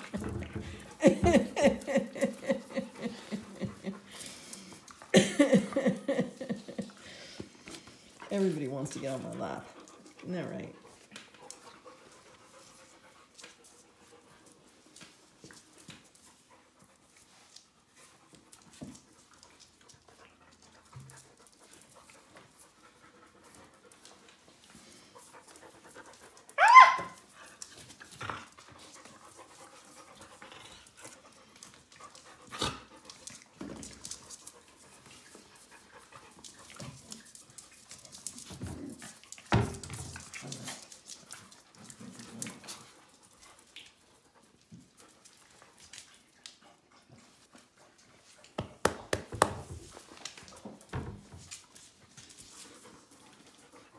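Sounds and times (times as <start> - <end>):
puppies panting: 0.0 - 48.6, 51.5 - 53.9
puppy yelping: 26.6 - 27.2.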